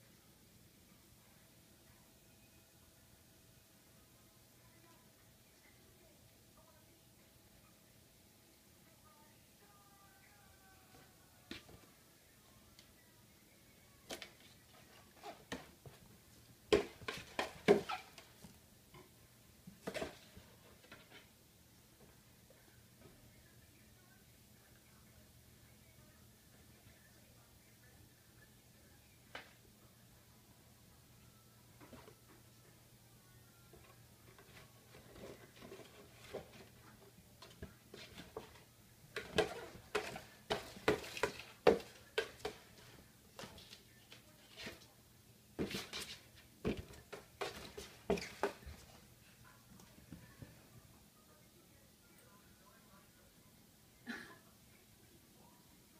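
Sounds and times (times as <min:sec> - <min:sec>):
box knocking and scraping on tiles: 0:37.9 - 0:42.7.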